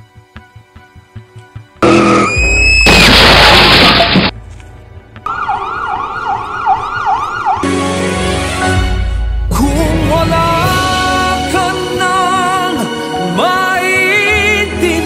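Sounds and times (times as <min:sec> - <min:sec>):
music: 0:00.0 - 0:02.9, 0:04.1 - 0:05.3, 0:07.6 - 0:15.0
loud car crash: 0:01.8 - 0:04.4
emergency vehicle siren: 0:05.2 - 0:07.8.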